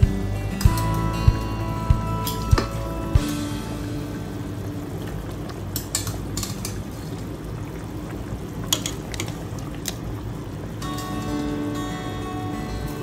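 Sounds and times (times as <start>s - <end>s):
background music: 0.0s - 5.0s
soup bubbling in pot: 2.7s - 11.7s.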